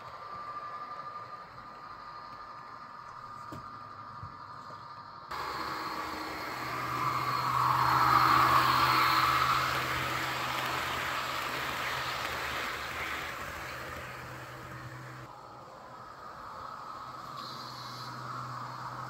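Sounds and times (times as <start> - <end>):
steady low hum: 0.0 - 19.0
model train wheels rattling: 5.3 - 15.3.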